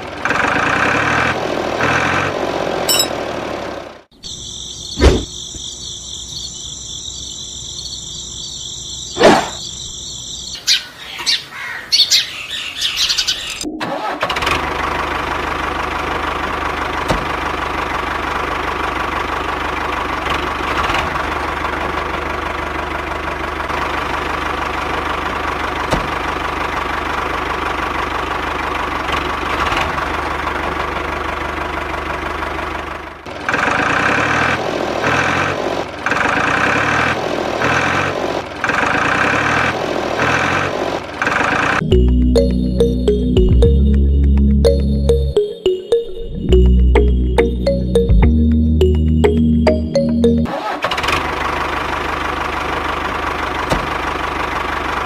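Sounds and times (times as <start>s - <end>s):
diesel tractor engine idling: 13.9s - 35.0s, 46.5s - 55.0s
music with a regular beat: 41.9s - 50.4s.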